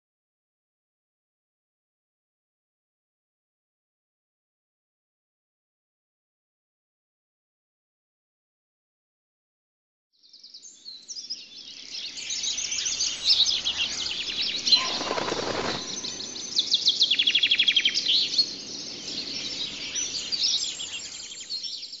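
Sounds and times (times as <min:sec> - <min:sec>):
canaries singing: 0:12.0 - 0:16.8
rustling noise: 0:14.6 - 0:16.3.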